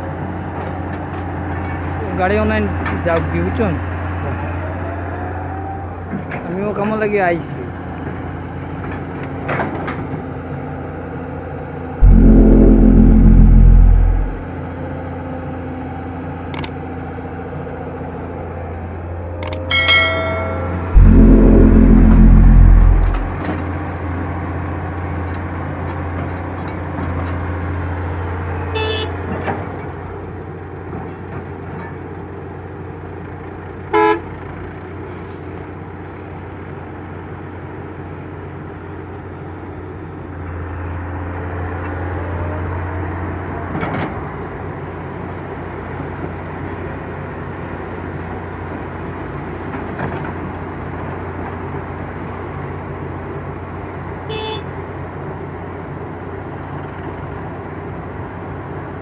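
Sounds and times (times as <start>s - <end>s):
diesel engines running: 12.0s - 14.4s, 17.5s - 23.6s
vehicle horn toot: 12.0s - 14.4s, 20.0s - 23.4s, 34.0s - 34.2s, 54.3s - 54.7s.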